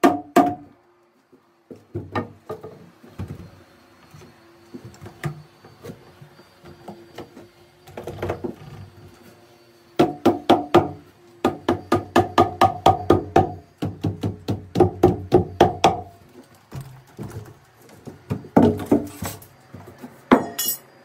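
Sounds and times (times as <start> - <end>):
hammer knocking on log: 10.0 - 16.1.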